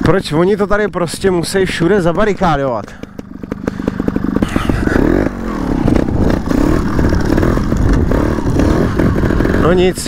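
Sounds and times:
dirt bike engine revving: 0:01.6 - 0:10.0.

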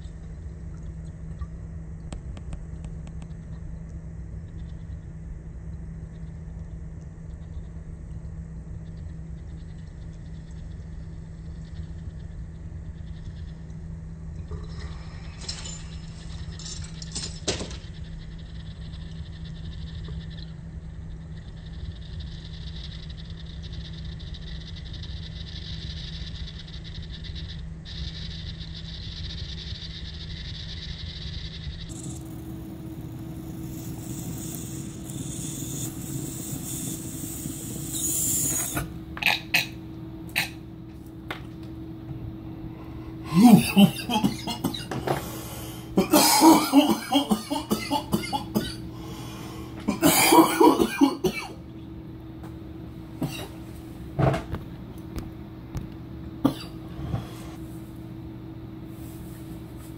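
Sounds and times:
hash bubbling on screen: 0:31.9 - 0:39.7
hiss of air drawn through water pipe: 0:33.1 - 0:38.9.

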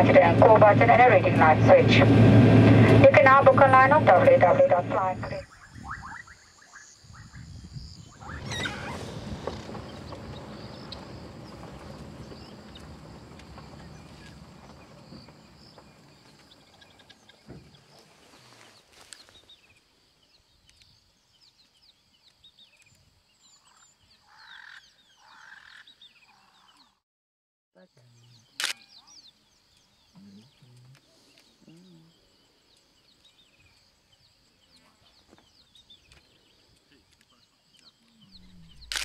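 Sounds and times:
steady high hum: 0:00.0 - 0:05.4
vehicle rumbling on dirt track: 0:00.0 - 0:05.4, 0:08.1 - 0:18.5, 0:38.3 - 0:39.0
birds chirping: 0:02.8 - 0:27.0, 0:27.9 - 0:39.0
harsh bird calls: 0:04.4 - 0:19.5, 0:23.6 - 0:27.0.

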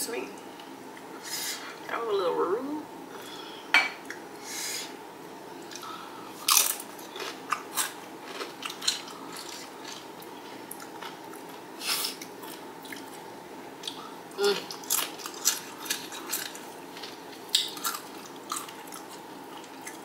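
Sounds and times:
chewing crunchy chips: 0:05.7 - 0:13.2, 0:13.8 - 0:20.0.

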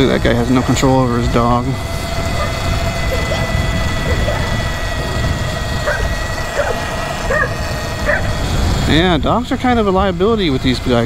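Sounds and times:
electric motor whine: 0:00.0 - 0:11.0
wind and tyre noise: 0:00.0 - 0:11.0
dog barking: 0:05.9 - 0:08.3.

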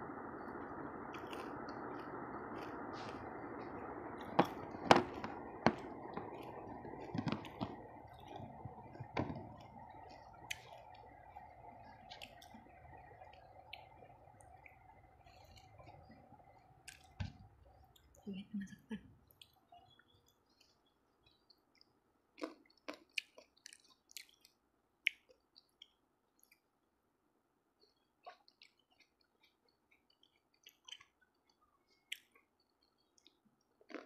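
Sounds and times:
steady background noise: 0:00.0 - 0:21.4
soft chewing: 0:00.1 - 0:26.8, 0:27.7 - 0:34.0.

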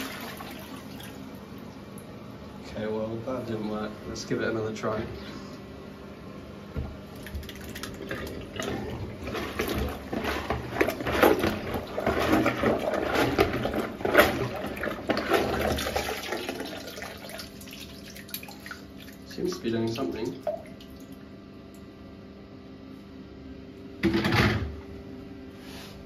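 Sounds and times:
water sloshing and splashing: 0:00.0 - 0:02.0, 0:07.0 - 0:21.2
plunger in toilet bowl: 0:06.8 - 0:20.8.

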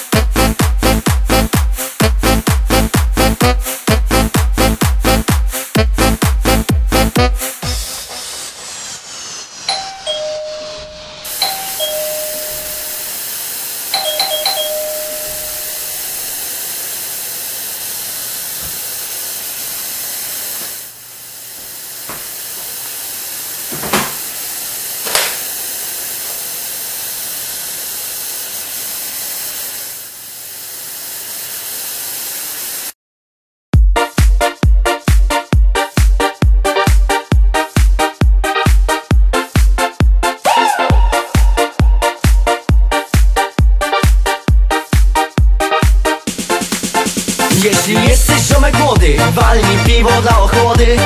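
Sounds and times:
steady hiss: 0:07.4 - 0:33.0
two-note doorbell chime: 0:09.7 - 0:13.1, 0:13.9 - 0:16.0.

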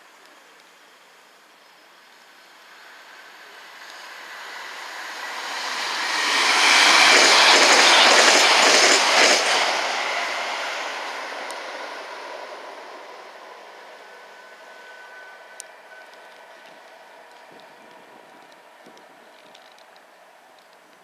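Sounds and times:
train wheel and rail noise: 0:00.0 - 0:21.0
wheels clicking over rail joints: 0:15.6 - 0:21.0.

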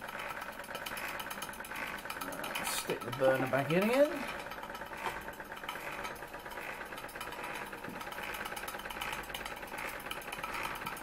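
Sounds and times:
steam engine exhaust chuffing: 0:00.0 - 0:11.0.

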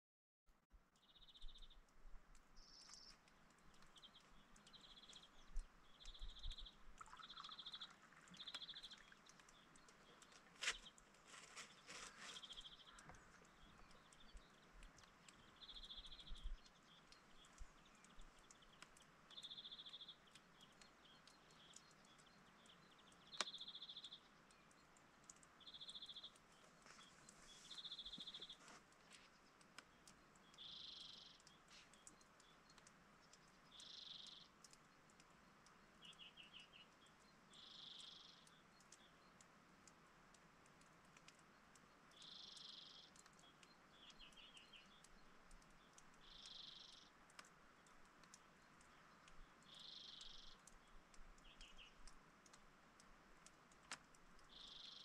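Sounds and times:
songbird singing: 0:00.5 - 0:55.0
sharp clicks: 0:39.8 - 0:54.8.

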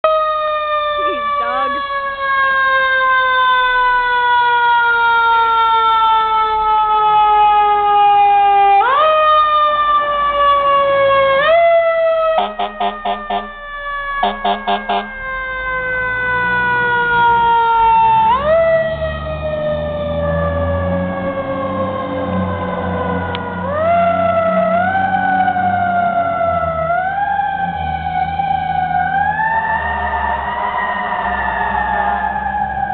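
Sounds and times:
fire engine siren: 0:00.0 - 0:32.9
truck engine: 0:00.0 - 0:32.9
rapid horn blasts: 0:12.4 - 0:13.6, 0:14.2 - 0:15.2.

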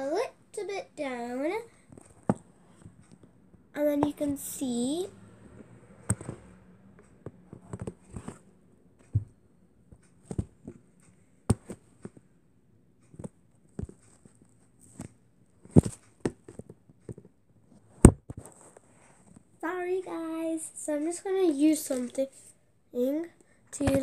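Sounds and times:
soft rustling: 0:01.1 - 0:12.3, 0:13.0 - 0:19.6.

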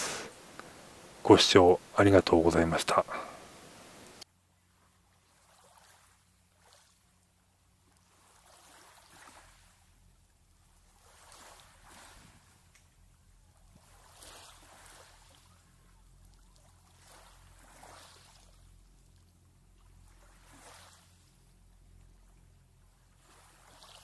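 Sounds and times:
small waves lapping on pebbles: 0:00.0 - 0:24.0.

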